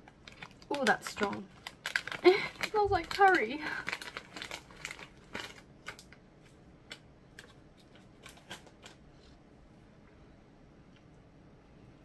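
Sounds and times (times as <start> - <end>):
plastic snack packet crinkling: 0.0 - 9.0.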